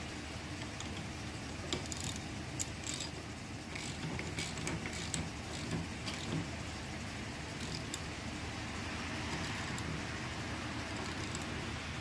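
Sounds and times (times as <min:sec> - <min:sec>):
steady low hum: 0:00.0 - 0:12.0
socket and ratchet clinking: 0:01.7 - 0:06.5.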